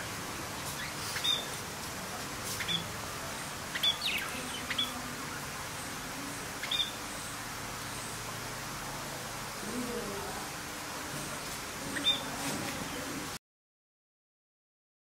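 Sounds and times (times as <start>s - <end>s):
budgerigars chirping: 0.0s - 1.6s, 2.6s - 3.0s, 3.7s - 5.5s, 6.6s - 7.4s, 11.9s - 12.4s
steady background hiss: 0.0s - 13.4s.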